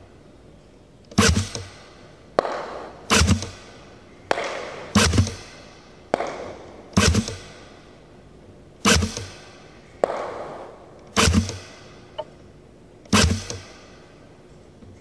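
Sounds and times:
gunshot cracks: 1.2s - 3.6s, 4.3s - 7.6s, 8.8s - 11.8s, 13.1s - 13.8s.

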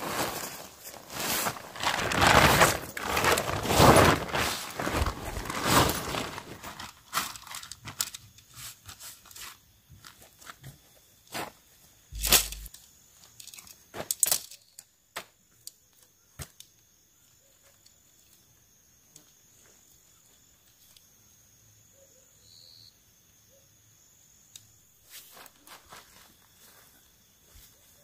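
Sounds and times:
tent pole sections clacking: 0.0s - 9.6s, 12.2s - 12.7s
tent poles being handled: 0.0s - 11.5s, 12.2s - 14.8s.

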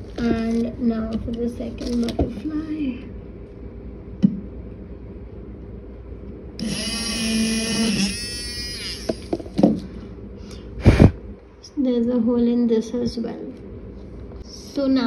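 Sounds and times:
electric drill whining: 6.6s - 9.6s.

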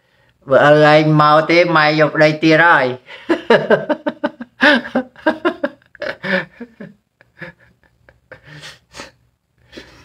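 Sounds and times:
man laughing: 3.1s - 9.1s.

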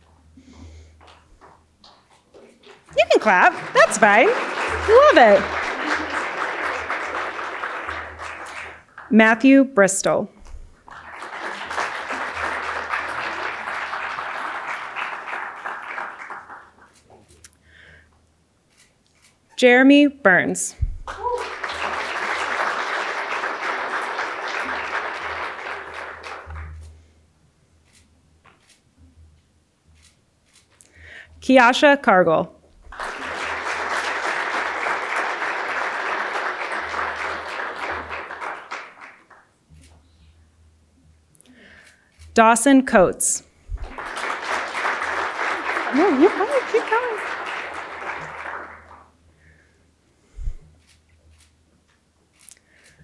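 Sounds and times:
audience applauding: 1.0s - 9.1s, 10.8s - 17.1s, 21.0s - 26.8s, 32.8s - 39.5s, 43.7s - 49.2s.

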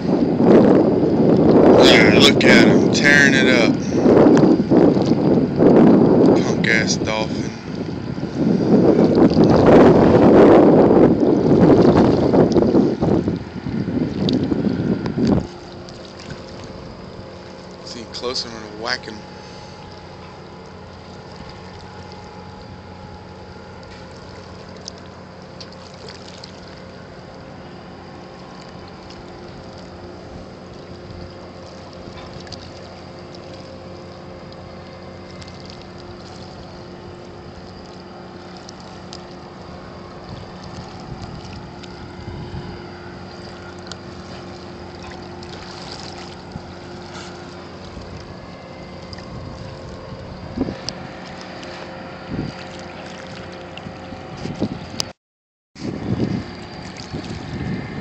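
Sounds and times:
light wind: 0.0s - 55.1s, 55.8s - 58.0s
boat engines humming: 0.0s - 55.2s, 55.8s - 58.0s
water noise: 0.0s - 55.2s, 55.8s - 58.0s.

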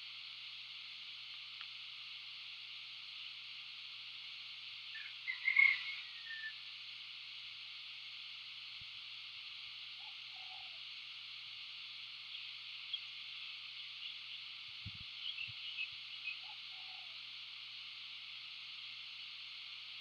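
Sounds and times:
steady high hiss: 0.0s - 20.0s
faint clicks: 1.3s - 1.8s
low hooting bird calls: 5.0s - 6.6s, 10.0s - 10.8s, 15.2s - 17.3s.

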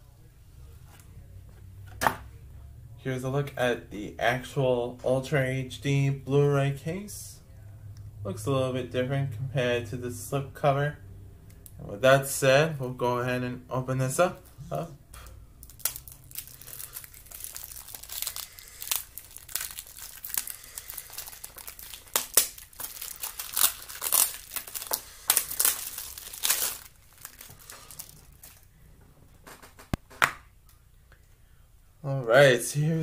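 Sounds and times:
plastic wrap crinkling: 15.6s - 28.7s.

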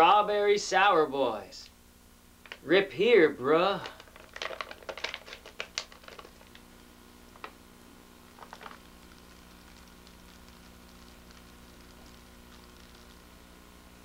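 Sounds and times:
wrapper rustles: 3.8s - 6.6s, 8.3s - 13.2s
candy wrapper crinkling: 3.8s - 6.7s, 8.3s - 13.3s.

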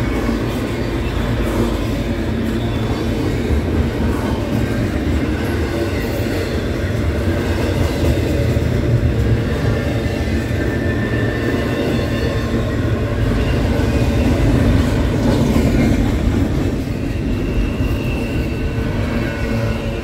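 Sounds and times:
freight train wheels rumbling: 0.0s - 20.0s
high wheel squeal: 9.5s - 15.8s, 16.7s - 20.0s.

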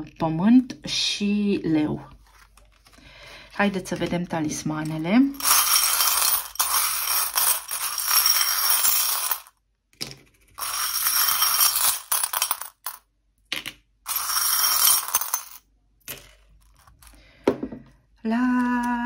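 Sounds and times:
metal charms jangling in glass bowl: 5.3s - 9.5s, 10.6s - 13.0s, 14.1s - 15.6s.

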